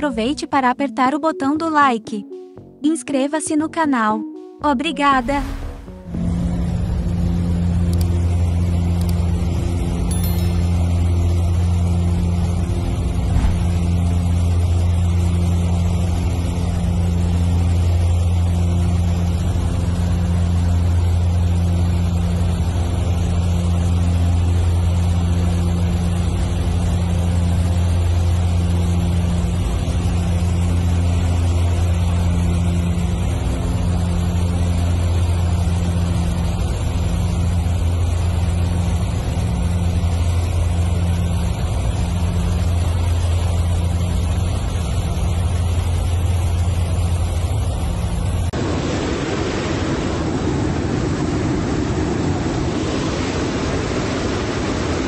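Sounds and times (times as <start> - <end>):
turboprop engine hum: 0.0 - 2.9, 4.2 - 55.0
rush of air noise: 5.2 - 6.8, 48.6 - 55.0.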